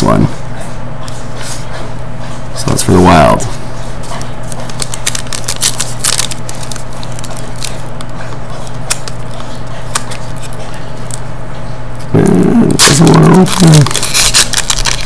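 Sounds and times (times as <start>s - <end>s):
low electrical hum: 0.0s - 15.0s
foil wrapper crinkling: 4.5s - 8.1s, 12.8s - 15.0s.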